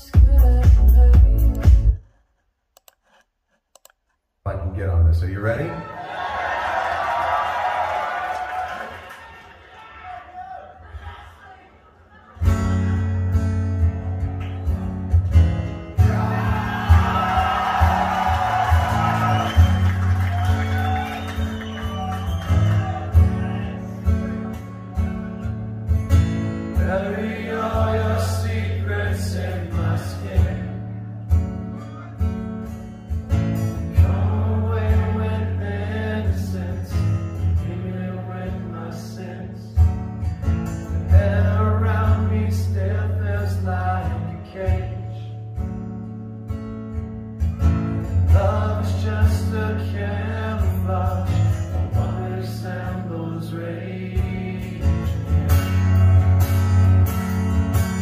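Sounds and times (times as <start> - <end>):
song through loudspeakers: 0.0 - 2.2.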